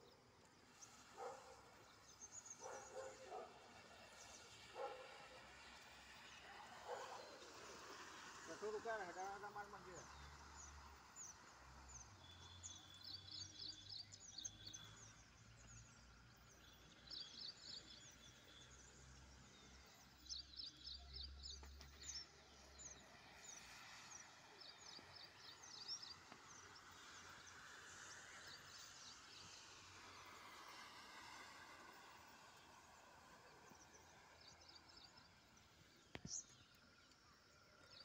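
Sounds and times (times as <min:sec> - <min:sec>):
birds chirping: 0:01.2 - 0:05.2.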